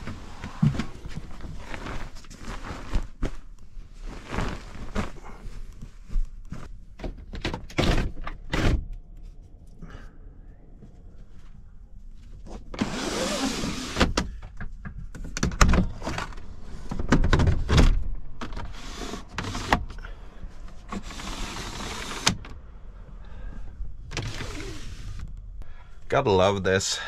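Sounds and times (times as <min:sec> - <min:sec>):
plastic skylight being pushed open: 0:12.7 - 0:14.4, 0:24.1 - 0:25.2
blind sliding rasps: 0:12.8 - 0:14.2, 0:18.4 - 0:19.9, 0:20.8 - 0:22.4, 0:24.1 - 0:25.2.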